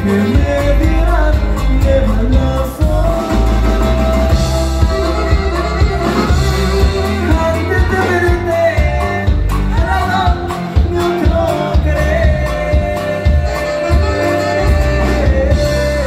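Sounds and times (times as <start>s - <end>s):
drum beats: 0.0s - 16.0s
steady bass: 0.0s - 16.0s
melody line: 2.8s - 10.3s.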